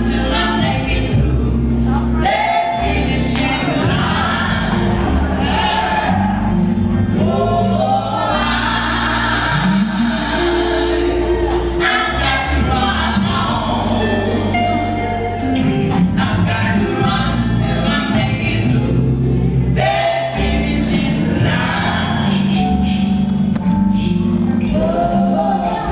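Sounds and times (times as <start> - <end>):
band with guitar bass drums keyboard: 0.0 - 25.9
vocal group singing gospel: 0.0 - 25.9.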